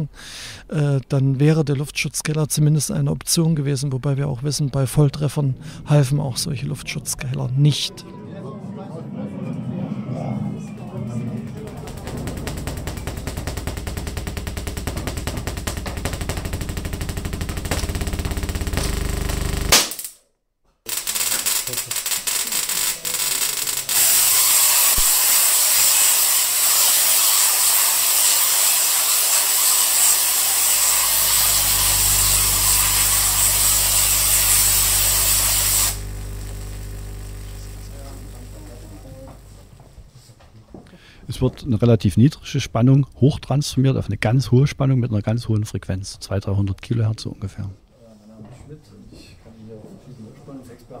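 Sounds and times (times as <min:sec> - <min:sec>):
tesla coil crackling discharge: 0:10.8 - 0:20.2, 0:20.9 - 0:39.7
rapid even ticking: 0:11.4 - 0:19.7.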